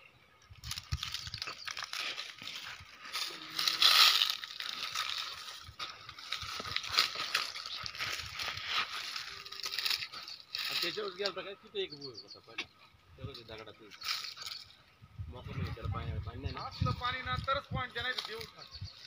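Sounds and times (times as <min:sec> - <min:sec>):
footsteps crunching dry straw: 0:00.6 - 0:11.4, 0:16.8 - 0:19.0.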